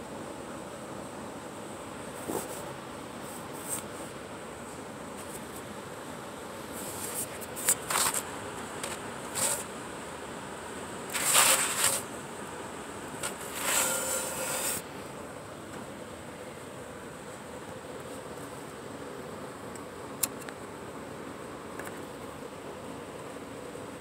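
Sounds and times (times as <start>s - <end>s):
background hiss: 0.0s - 24.0s
scraping and rustling: 6.8s - 9.7s, 11.1s - 12.1s, 13.2s - 14.9s.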